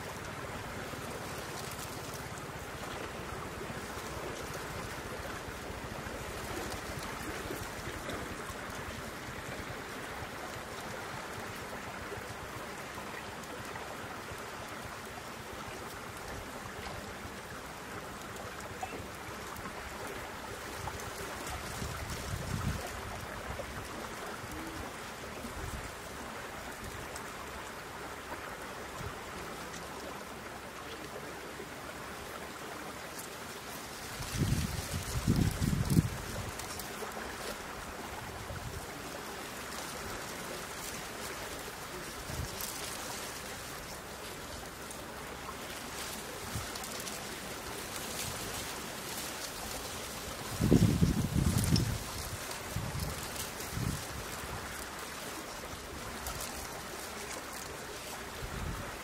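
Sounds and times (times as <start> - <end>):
rushing outdoor background noise: 0.0 - 59.0
wind rumbling on microphone: 15.6 - 27.5, 33.6 - 59.0.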